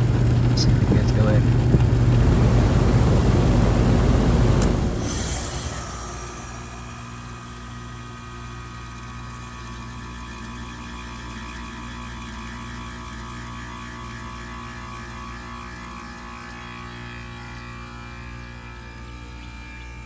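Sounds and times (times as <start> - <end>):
heat pump low hum: 0.0 - 20.0.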